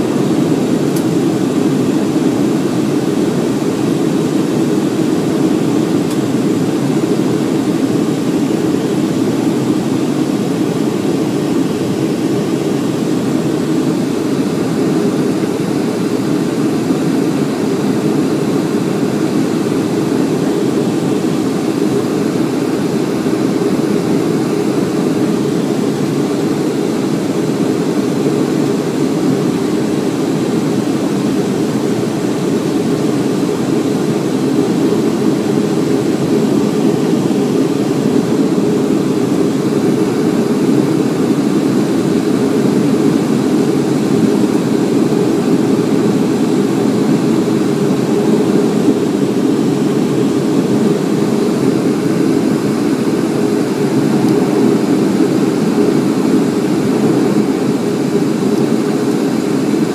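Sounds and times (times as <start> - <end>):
jet engines roaring: 0.0 - 59.9
rushing air: 28.8 - 59.9.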